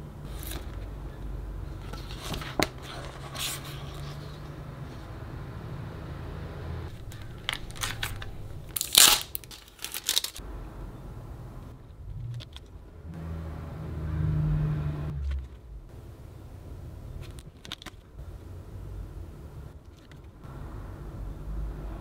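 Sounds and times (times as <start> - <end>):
cards and packaging clicking: 6.9 - 10.4, 12.2 - 12.8, 17.1 - 18.2, 19.8 - 20.4
packaging crinkle: 7.0 - 10.4.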